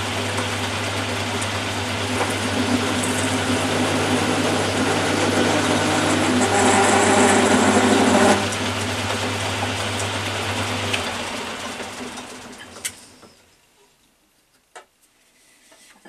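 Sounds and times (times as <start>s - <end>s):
lathe cutting steel: 1.1s - 12.5s.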